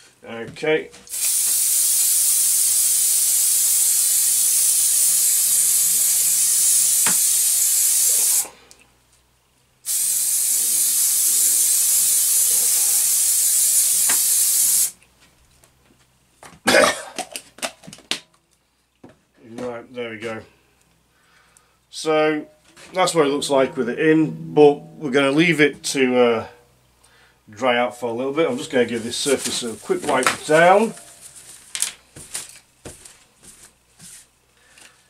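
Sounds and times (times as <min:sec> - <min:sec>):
aerosol spray hissing: 0:01.1 - 0:08.5, 0:09.9 - 0:14.9.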